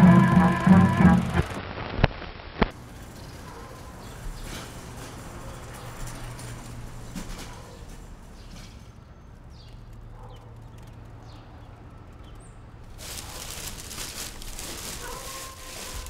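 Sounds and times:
low steady hum: 0:00.0 - 0:01.6
plastic garbage bags rustling: 0:12.9 - 0:16.0.

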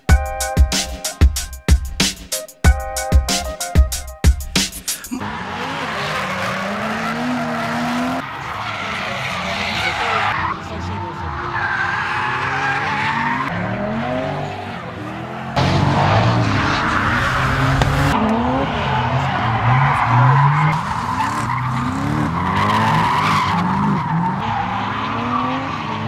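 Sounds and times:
tyres skidding: 0:04.4 - 0:26.0
car engines revving: 0:04.9 - 0:26.0.

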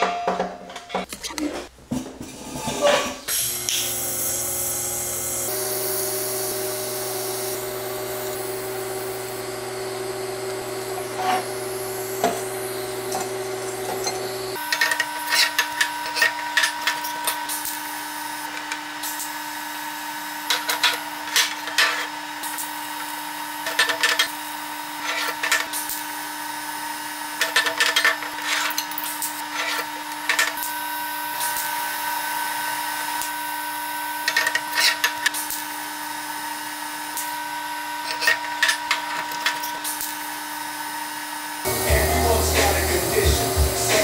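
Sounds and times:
welding arc buzzing: 0:03.3 - 0:15.7, 0:41.6 - 0:44.0.

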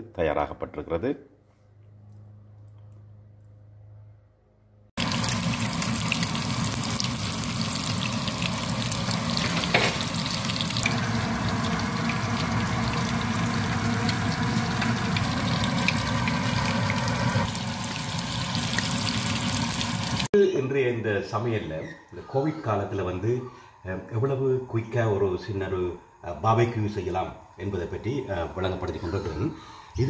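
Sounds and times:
hot oil sizzling and crackling: 0:05.0 - 0:20.3.

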